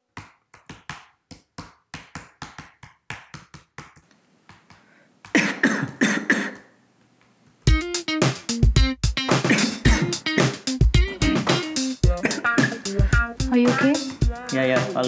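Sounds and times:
man coughing: 0:05.4 - 0:06.6, 0:09.4 - 0:12.9.

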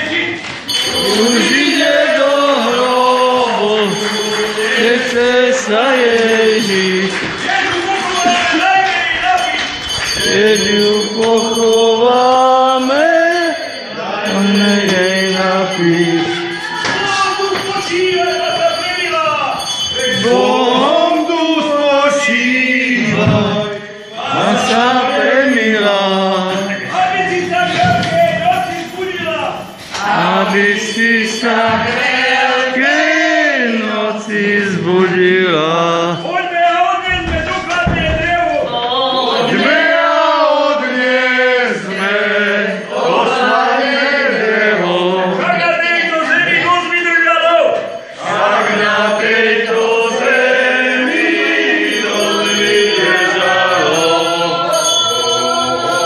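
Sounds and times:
men singing a slow lament: 0:00.7 - 0:07.5, 0:10.0 - 0:17.6, 0:19.9 - 0:28.4, 0:29.6 - 0:36.3, 0:38.6 - 0:45.6, 0:47.9 - 0:56.0.

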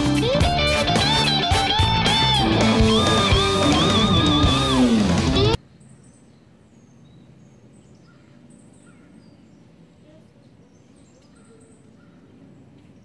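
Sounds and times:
electric guitar music: 0:00.0 - 0:05.6
bird chirps: 0:05.7 - 0:13.0.

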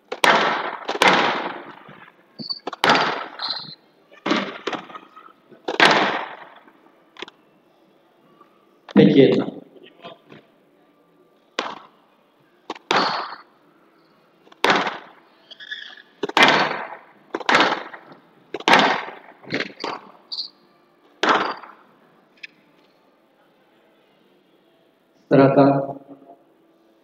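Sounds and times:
squash ball cracking off walls: 0:00.1 - 0:03.5, 0:04.2 - 0:04.9, 0:05.7 - 0:06.6, 0:11.6 - 0:11.9, 0:12.7 - 0:13.5, 0:14.5 - 0:15.2, 0:16.2 - 0:20.2, 0:21.2 - 0:21.8
shoe squeaks on court floor: 0:02.4 - 0:02.8, 0:03.4 - 0:03.8, 0:15.4 - 0:16.1, 0:19.7 - 0:20.6.

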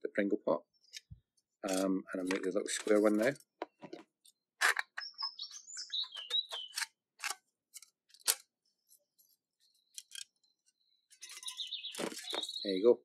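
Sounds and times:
bird singing falling notes: 0:04.8 - 0:07.0, 0:09.6 - 0:13.0.

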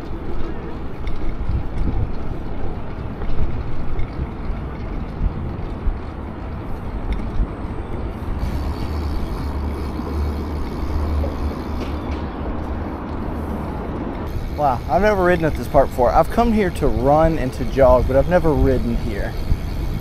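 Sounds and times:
bike tyre rumble: 0:00.0 - 0:20.0
wind on microphone: 0:00.0 - 0:20.0.

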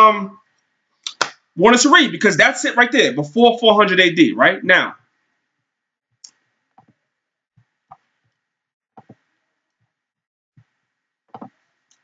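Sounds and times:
computer mouse clicks: 0:11.4 - 0:12.0.

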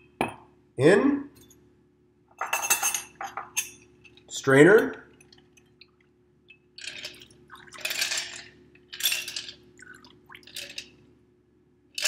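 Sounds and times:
glass and ice clinking: 0:02.4 - 0:04.2, 0:06.5 - 0:10.9
liquid pouring and splashing: 0:06.8 - 0:08.1, 0:09.6 - 0:10.9.

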